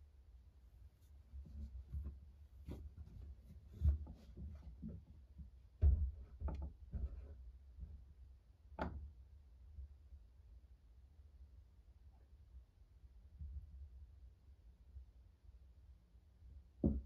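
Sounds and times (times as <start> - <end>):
muffled knocks and taps in drum: 5.8 - 7.3.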